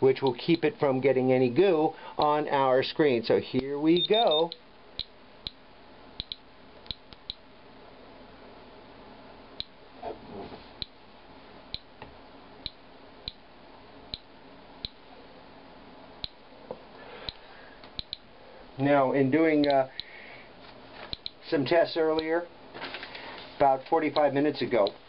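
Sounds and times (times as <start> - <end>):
geiger counter clicking: 6.2 - 7.4, 16.2 - 16.4, 17.3 - 18.3.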